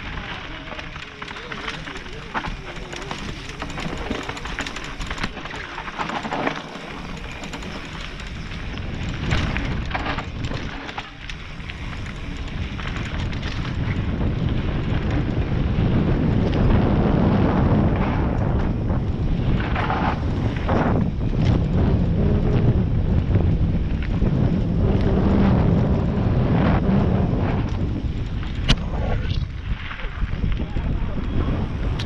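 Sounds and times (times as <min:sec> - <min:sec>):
clicks and knocks from trail: 0:00.0 - 0:16.8, 0:17.8 - 0:22.0
mountain bike rattling: 0:00.0 - 0:32.0
wind on microphone: 0:00.0 - 0:32.0.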